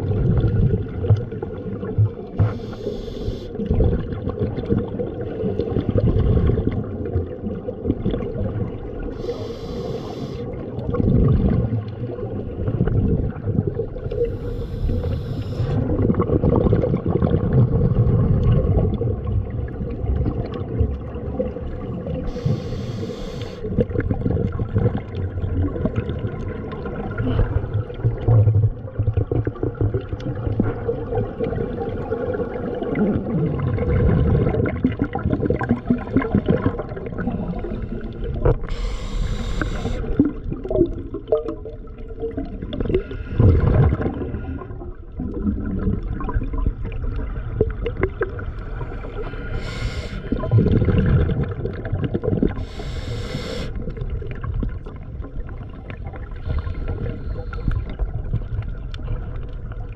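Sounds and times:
water gurgling and rumbling: 0:00.0 - 0:59.9
short hissing bursts: 0:02.5 - 0:03.5, 0:09.2 - 0:10.4, 0:22.3 - 0:23.6, 0:38.7 - 0:40.1, 0:49.5 - 0:50.3, 0:52.6 - 0:53.8.

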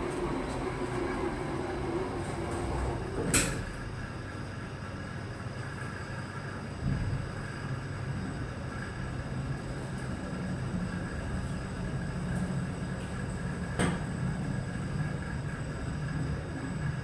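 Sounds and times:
lift machinery humming: 0:00.0 - 0:06.3.

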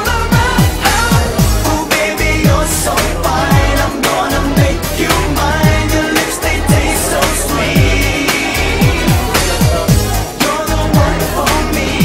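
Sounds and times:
deep kick drums: 0:00.3 - 0:06.0, 0:06.6 - 0:11.4.

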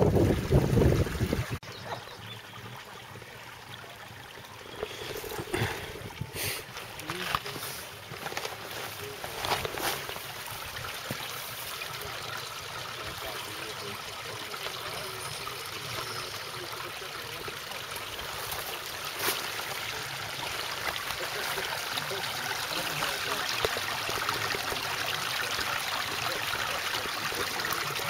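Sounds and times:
water trickling over stones: 0:00.0 - 0:28.0.

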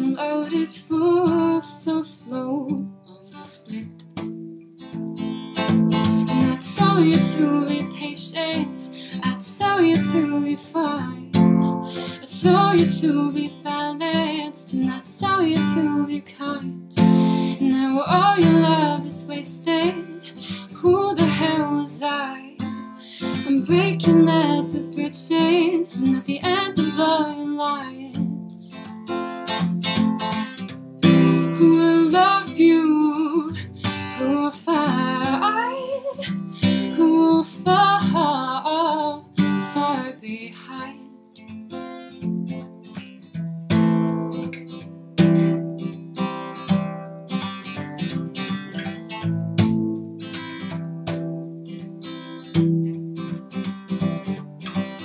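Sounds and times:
acoustic guitar strumming: 0:03.6 - 0:40.0, 0:41.3 - 0:55.0
person singing: 0:06.4 - 0:28.7, 0:31.2 - 0:41.1.

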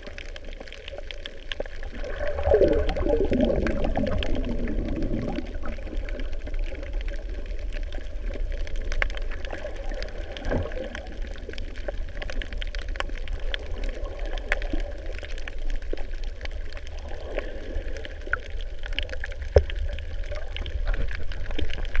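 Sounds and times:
low underwater rumble: 0:00.0 - 0:22.0
sharp clicks and crackles: 0:00.0 - 0:22.0.

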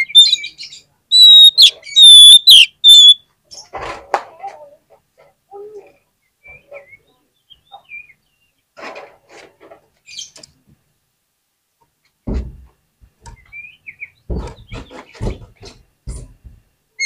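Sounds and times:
magpie-robin singing: 0:00.0 - 0:03.2
harsh scratchy bird calls: 0:00.0 - 0:03.8.

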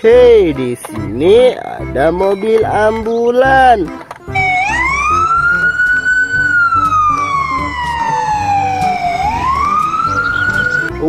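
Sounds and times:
ambulance siren wailing: 0:04.4 - 0:11.0.

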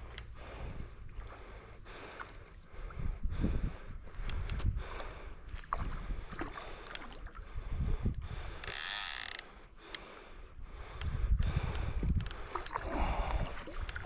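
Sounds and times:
wind rumbling on microphone: 0:02.6 - 0:09.4, 0:10.3 - 0:14.0
fish thrashing in water: 0:12.4 - 0:14.0.

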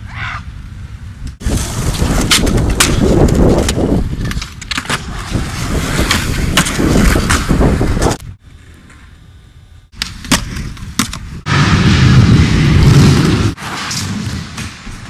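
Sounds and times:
skateboard wheels rolling on concrete: 0:00.0 - 0:15.0
skateboard popping and landing clacks: 0:01.4 - 0:08.2, 0:09.9 - 0:11.3.

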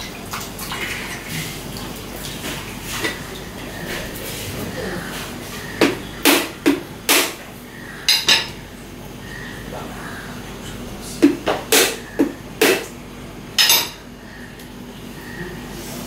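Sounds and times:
knife striking coconut shell: 0:06.3 - 0:07.4.

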